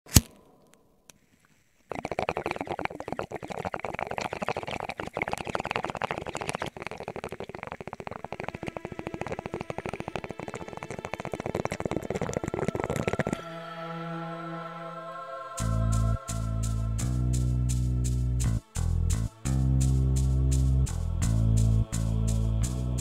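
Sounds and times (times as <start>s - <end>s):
crackling and popping: 0.1s - 13.4s.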